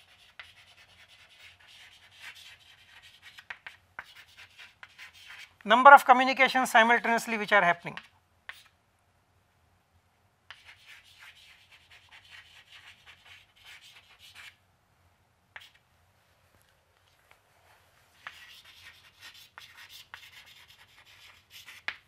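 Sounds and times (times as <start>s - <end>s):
chalk scratching on a chalkboard: 0.0s - 5.5s, 8.0s - 8.8s, 10.5s - 14.6s, 15.6s - 15.8s, 18.2s - 22.0s.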